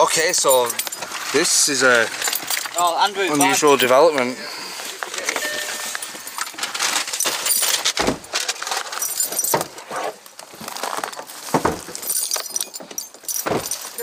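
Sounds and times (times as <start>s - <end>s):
light clinking: 0.0s - 1.2s, 12.0s - 14.0s
footsteps crunching on gravel: 10.1s - 12.2s.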